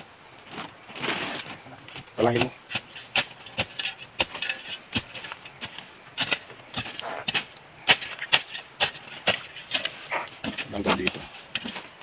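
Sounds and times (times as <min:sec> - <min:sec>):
digging tool chopping into soil: 0:02.2 - 0:11.8.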